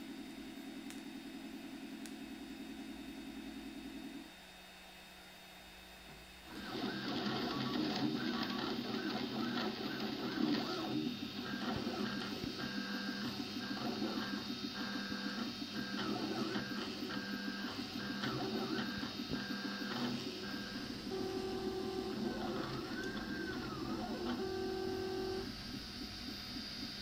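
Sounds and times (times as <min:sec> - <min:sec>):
stepper motors whining: 0:06.5 - 0:26.8.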